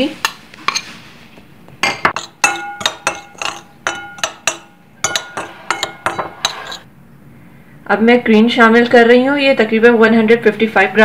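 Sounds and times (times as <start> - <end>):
spoon clinking against glass bowl: 1.8 - 6.8.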